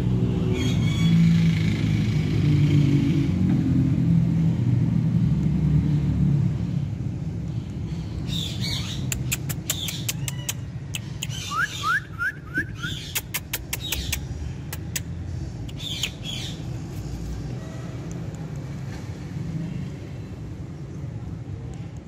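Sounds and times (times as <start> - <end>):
parakeet squawks and chirps: 0.5 - 1.4, 8.3 - 12.0, 12.7 - 14.3, 15.7 - 16.7
sharp clicks: 9.0 - 11.4, 13.0 - 16.2.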